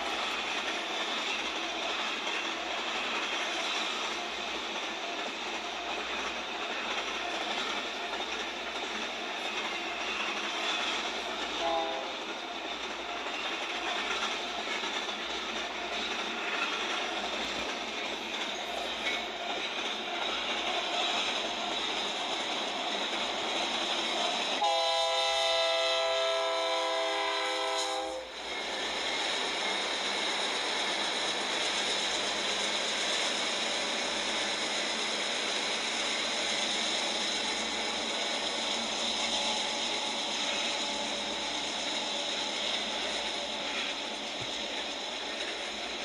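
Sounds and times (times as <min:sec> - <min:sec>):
rumble of freight trains passing: 0:00.0 - 0:46.0
locomotive horn blast: 0:11.6 - 0:12.1, 0:24.6 - 0:28.3.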